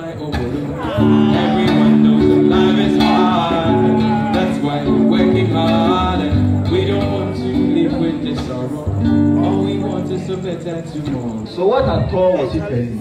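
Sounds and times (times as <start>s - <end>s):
man singing into a microphone: 0.0s - 11.4s
acoustic guitar chords: 0.0s - 12.3s.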